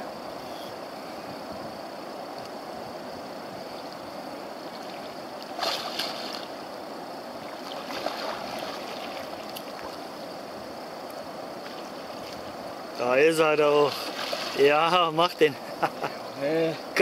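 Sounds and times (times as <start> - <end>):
rushing water: 0.0 - 17.0
fish thrashing water splashes: 5.6 - 6.5, 14.0 - 14.6.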